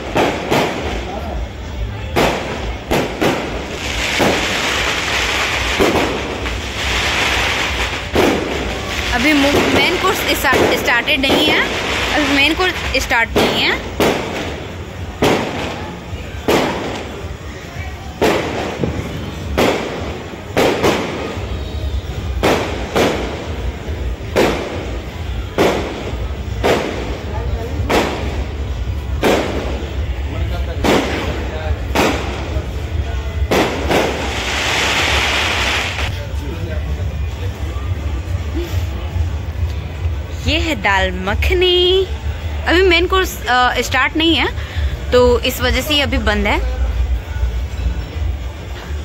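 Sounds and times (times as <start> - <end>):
loud booming bangs: 0.0 - 17.6, 18.2 - 36.1.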